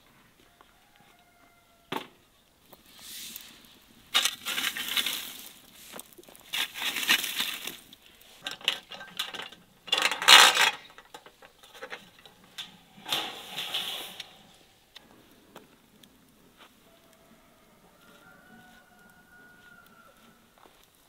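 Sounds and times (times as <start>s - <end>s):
metal tray clinking and scraping: 4.2s - 5.5s, 8.4s - 14.6s.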